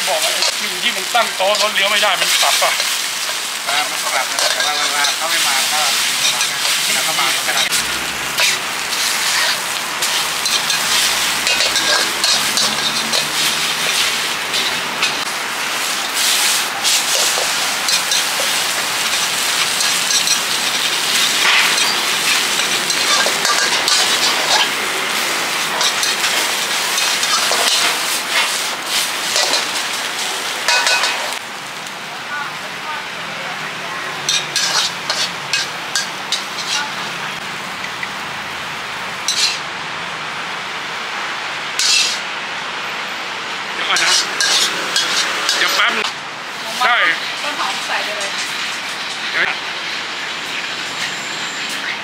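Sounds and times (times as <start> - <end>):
food sizzling in a wok: 0.0 - 52.0
spatula scraping a wok: 0.2 - 15.3, 15.9 - 30.0, 30.6 - 31.4, 34.3 - 37.0, 39.3 - 39.6, 41.8 - 42.2, 44.0 - 46.1.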